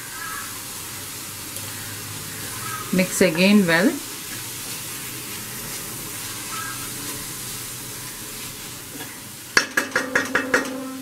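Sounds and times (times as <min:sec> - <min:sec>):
masala sizzling in a pan: 0:00.0 - 0:11.0
spatula stirring: 0:04.2 - 0:11.0
spatula knocking on pan: 0:09.6 - 0:11.0.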